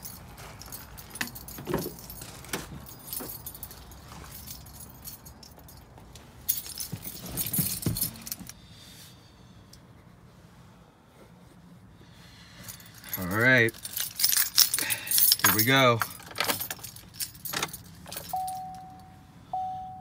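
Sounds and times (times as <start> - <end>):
keys jangling: 0.0 - 8.6, 12.6 - 19.0.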